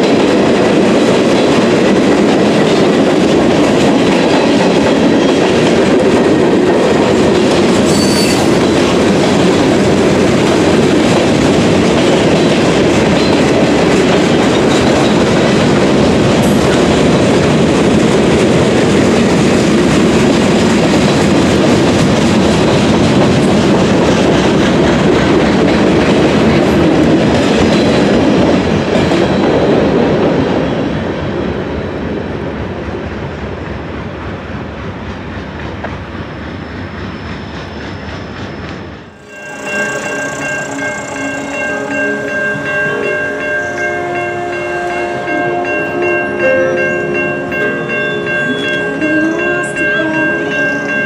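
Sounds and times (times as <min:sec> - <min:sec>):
wheels clacking over rail joints: 0:00.0 - 0:30.6
freight train rumbling past: 0:00.0 - 0:51.0.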